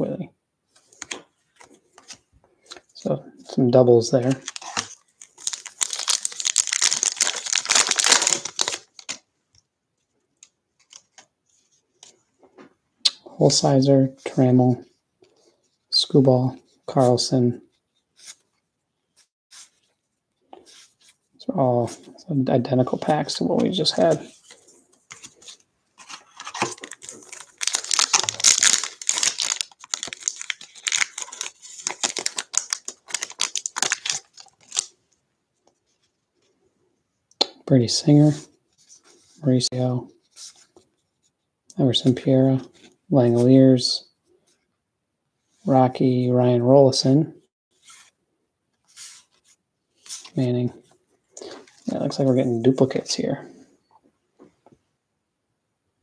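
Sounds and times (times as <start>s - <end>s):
foil wrapper tearing and crinkling: 4.3s - 9.2s, 26.4s - 34.9s.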